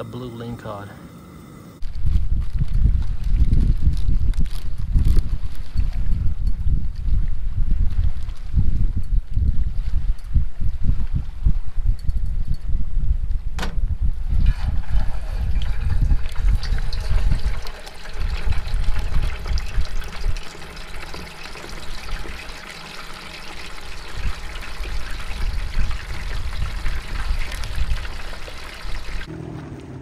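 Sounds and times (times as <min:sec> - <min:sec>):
low gusty rumble: 0:01.8 - 0:20.6, 0:23.8 - 0:30.0
fish sizzling in hot oil: 0:15.1 - 0:29.3.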